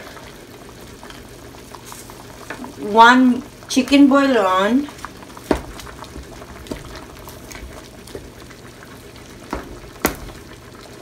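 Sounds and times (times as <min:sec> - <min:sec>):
broth simmering and bubbling: 0:00.0 - 0:11.0
spatula knocking against pan: 0:05.4 - 0:07.1, 0:09.4 - 0:10.4.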